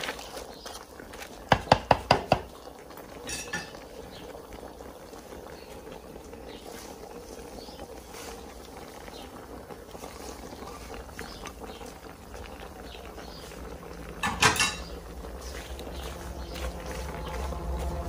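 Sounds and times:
herbs rustling into pot: 0:00.0 - 0:01.7, 0:06.5 - 0:18.0
pot simmering: 0:00.0 - 0:18.0
low rumble: 0:14.9 - 0:18.0.

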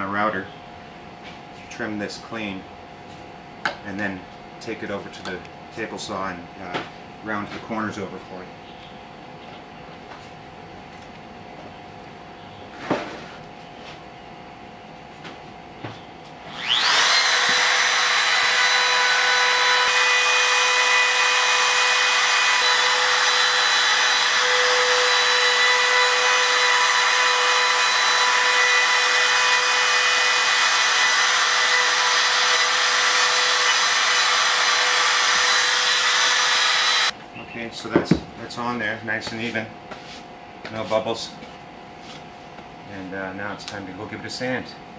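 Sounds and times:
router whining: 0:16.3 - 0:37.2.

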